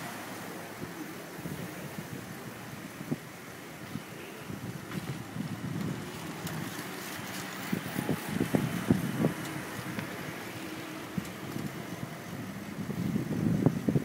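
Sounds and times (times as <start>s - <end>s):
car traffic: 0.0s - 14.0s
wind rushing: 3.9s - 14.0s.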